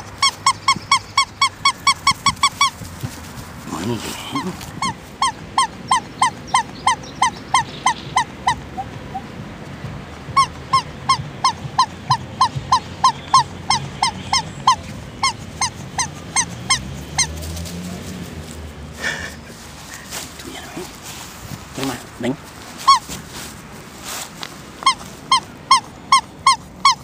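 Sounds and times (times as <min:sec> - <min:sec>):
squeaky toy squeaking: 0:00.0 - 0:09.3, 0:10.2 - 0:18.2, 0:21.7 - 0:23.6, 0:24.7 - 0:27.0.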